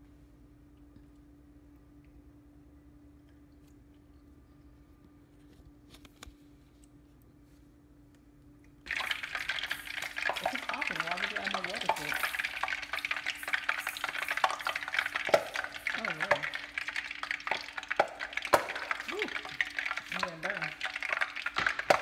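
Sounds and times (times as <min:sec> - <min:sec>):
oil sizzling in frying pan: 0:08.9 - 0:22.0.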